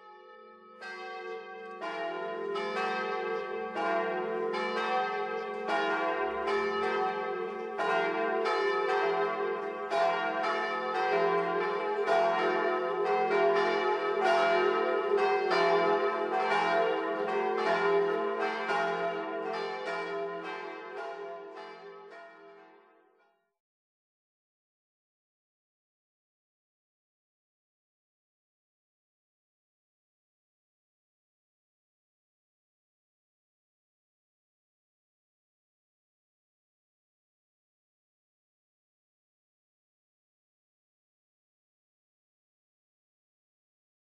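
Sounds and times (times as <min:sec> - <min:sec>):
church bells pealing: 0:00.0 - 0:22.8.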